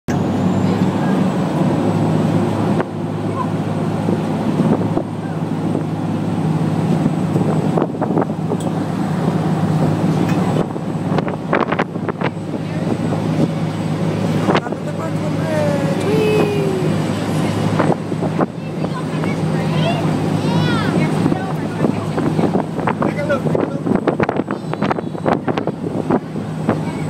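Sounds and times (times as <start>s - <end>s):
ferry engines droning: 0.1s - 27.0s
wind buffeting microphone: 0.2s - 27.0s.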